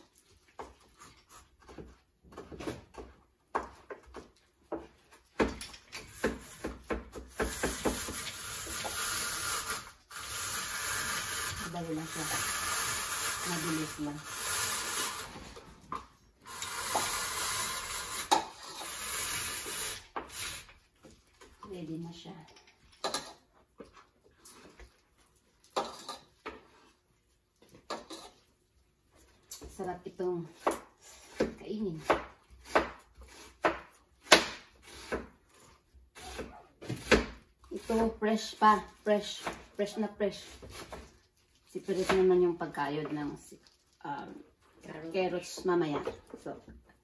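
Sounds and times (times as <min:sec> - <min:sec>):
papaya rasping on a grater: 0:07.4 - 0:15.4.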